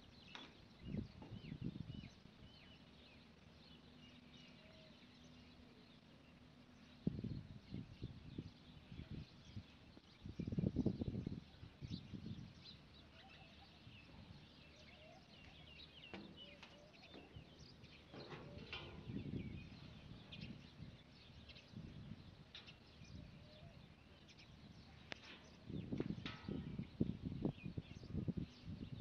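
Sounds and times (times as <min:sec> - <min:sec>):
faint birds chirping: 0:00.0 - 0:29.0
low rumbles: 0:13.7 - 0:29.0.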